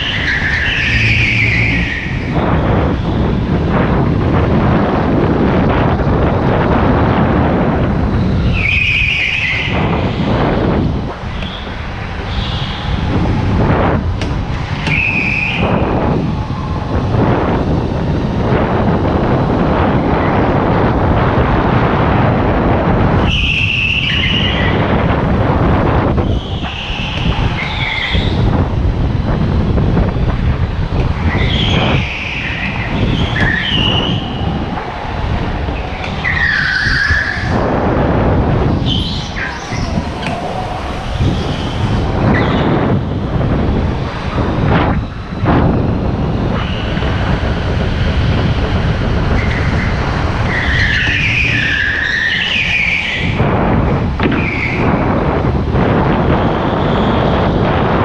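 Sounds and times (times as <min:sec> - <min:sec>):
tyres squealing: 0:00.0 - 0:03.6, 0:11.2 - 0:16.9, 0:26.1 - 0:28.7, 0:30.9 - 0:53.4.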